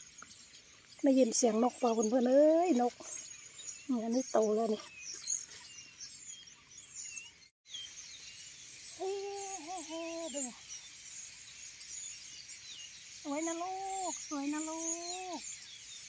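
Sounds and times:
wild birds chirping and singing: 0:00.0 - 0:16.0
woman's voice: 0:01.0 - 0:03.2, 0:03.9 - 0:04.9, 0:09.0 - 0:10.6, 0:13.3 - 0:15.4.

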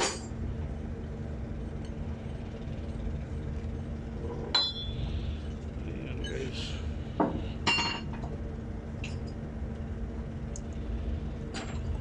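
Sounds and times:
low machinery hum: 0:00.0 - 0:12.0.

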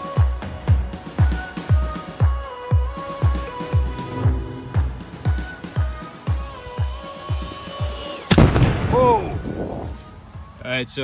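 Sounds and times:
electronic music with kick drum: 0:00.0 - 0:08.2.

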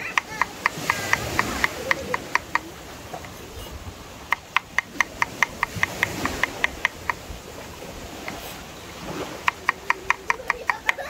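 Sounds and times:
knife chopping on wooden board: 0:04.3 - 0:07.2.

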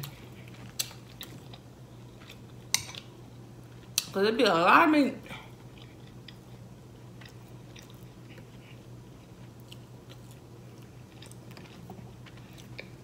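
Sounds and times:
steady low hum: 0:00.0 - 0:13.0
person chewing meat: 0:05.5 - 0:13.0.

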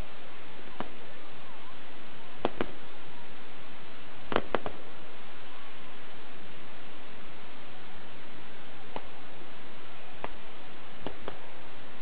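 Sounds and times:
steady hiss: 0:00.0 - 0:12.0
firework shells bursting: 0:00.7 - 0:01.1, 0:02.4 - 0:03.1, 0:04.2 - 0:05.1, 0:08.8 - 0:11.6.

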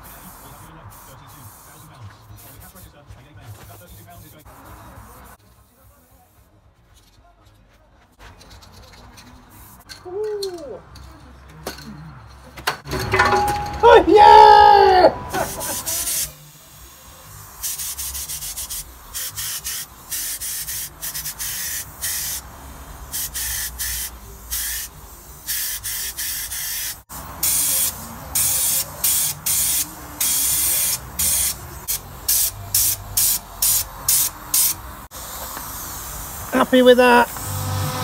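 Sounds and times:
spray gun hissing: 0:00.0 - 0:02.8, 0:15.4 - 0:37.8.

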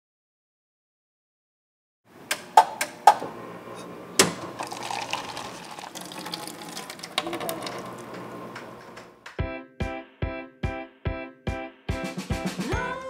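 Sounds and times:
coffee machine whir: 0:02.3 - 0:09.3
coffee machine knock: 0:04.2 - 0:04.6
coffee streaming from spout: 0:04.2 - 0:08.8.

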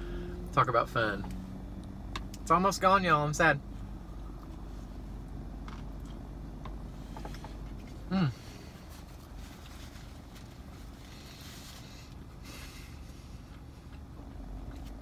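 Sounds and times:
low background hum: 0:00.0 - 0:15.0
man humming mmm: 0:08.0 - 0:08.6.

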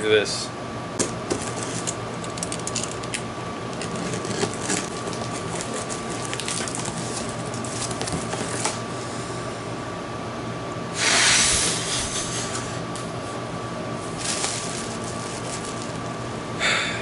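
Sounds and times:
cardboard box rustling: 0:03.9 - 0:08.8.

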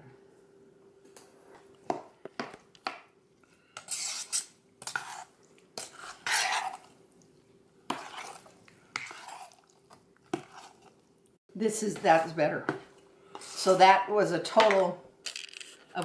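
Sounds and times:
fork scraping a metal saucepan: 0:03.8 - 0:06.9, 0:07.9 - 0:09.6, 0:10.3 - 0:10.9.

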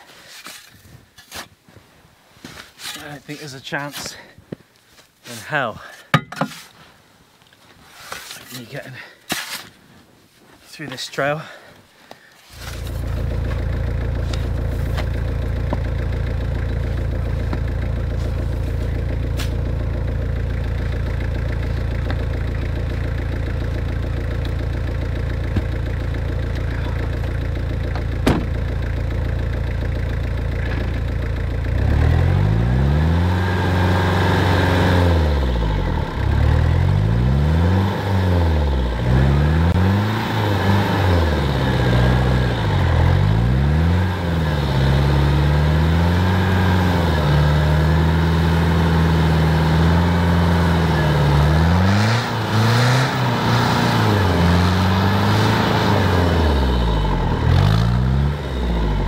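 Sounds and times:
diesel engine idling: 0:12.6 - 0:59.0
engine revving: 0:12.6 - 0:59.0.

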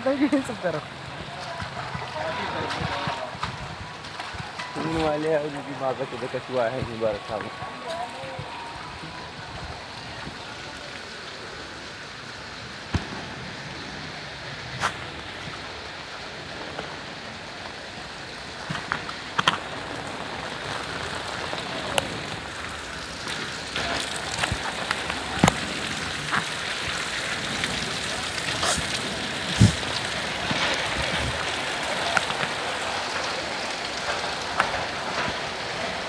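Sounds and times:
rain hissing on standing water: 0:00.0 - 0:36.0
raindrops tapping close by: 0:00.0 - 0:36.0.

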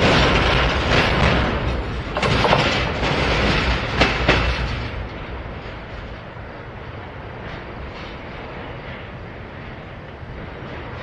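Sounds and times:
wheels clicking over rail joints: 0:00.0 - 0:06.4
train wheels rumbling on rail: 0:00.0 - 0:11.0.

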